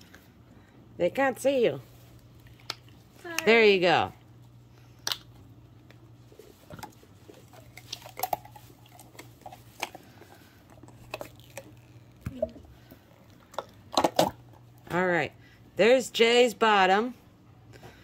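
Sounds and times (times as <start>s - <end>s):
faint steady hum: 0.0s - 18.0s
silicone squishing and rubbing: 6.2s - 12.2s.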